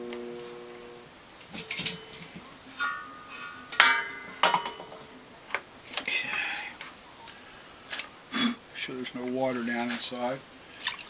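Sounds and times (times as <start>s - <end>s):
faint hum: 0.0s - 5.4s.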